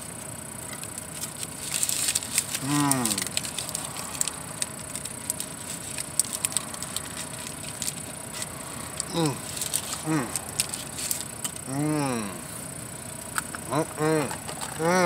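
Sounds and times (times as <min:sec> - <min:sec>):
paper wrapper crinkling: 0:00.7 - 0:11.7
person humming: 0:02.6 - 0:03.3, 0:09.0 - 0:10.6, 0:11.6 - 0:12.6, 0:13.7 - 0:15.0.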